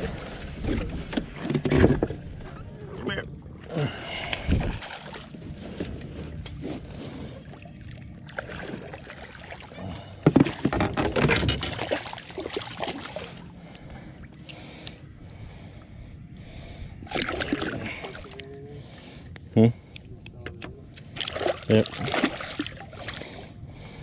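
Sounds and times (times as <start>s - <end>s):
fish thrashing and splashing: 4.3s - 5.4s, 10.3s - 13.4s, 17.0s - 18.4s, 21.0s - 23.4s.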